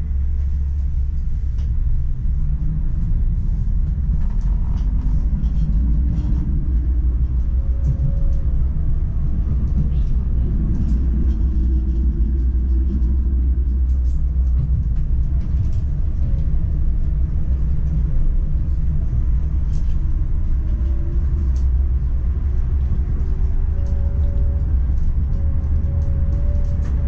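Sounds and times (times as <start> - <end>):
tram rumbling: 0.0 - 27.0.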